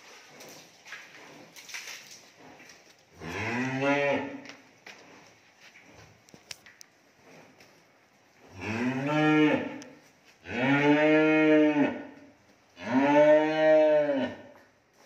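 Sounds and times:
young cattle mooing: 0:03.2 - 0:04.4, 0:08.6 - 0:09.8, 0:10.4 - 0:12.0, 0:12.8 - 0:14.4.

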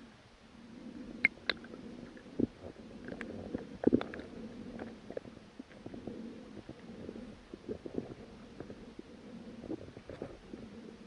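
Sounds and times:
underwater low rumble: 0:00.0 - 0:11.0
faint clicks: 0:03.0 - 0:05.8.

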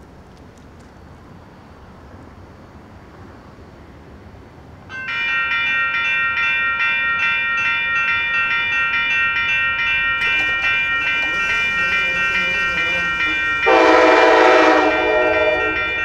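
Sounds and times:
low street background hum: 0:00.0 - 0:16.0
crossing warning bell ringing: 0:04.9 - 0:16.0.

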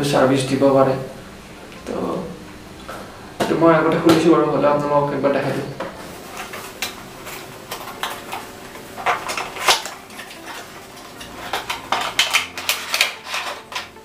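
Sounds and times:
cardboard packaging rustling: 0:06.0 - 0:14.0.

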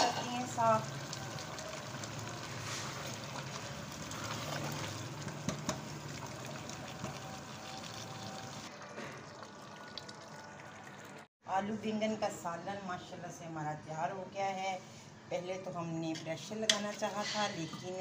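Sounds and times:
curry sizzling and bubbling in pot: 0:00.0 - 0:11.3
spatula stirring in pot: 0:01.8 - 0:07.2.

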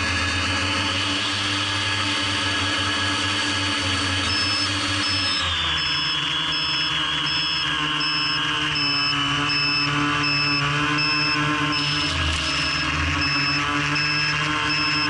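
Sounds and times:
quadcopter motors whining: 0:00.0 - 0:15.0
short high beeps: 0:04.3 - 0:15.0.

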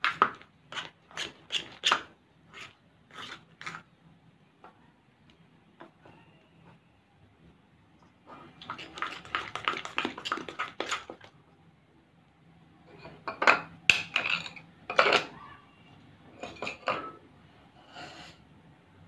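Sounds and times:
spoon scraping slime in bowl: 0:00.7 - 0:03.9, 0:08.4 - 0:11.3.

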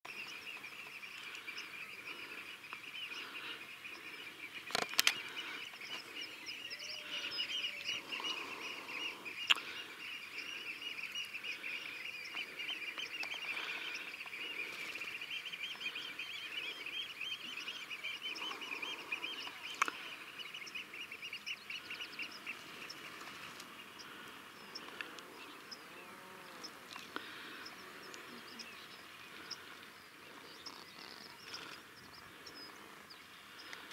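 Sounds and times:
lower bird calls: 0:00.1 - 0:33.9
seabirds calling: 0:00.1 - 0:33.9
sharp clicks: 0:04.7 - 0:05.3.

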